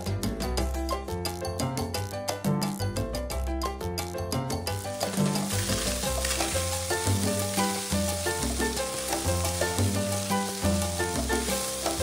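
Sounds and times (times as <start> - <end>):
background music: 0.0 - 12.0
chicken sizzling in oil: 4.7 - 12.0
wooden spoon stirring in wok: 4.9 - 12.0.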